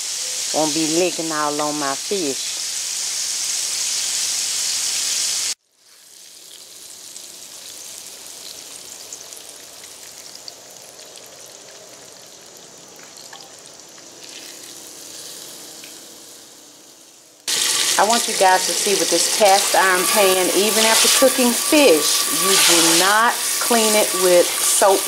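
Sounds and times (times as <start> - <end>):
loud hiss: 0.0 - 5.6, 17.5 - 25.0
fish sizzling in oil: 0.0 - 25.0.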